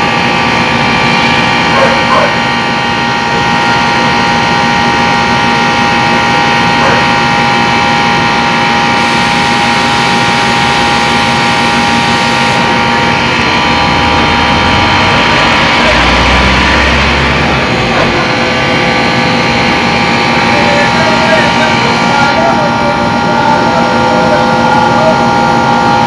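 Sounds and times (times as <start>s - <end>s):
air conditioner humming: 0.0s - 26.0s.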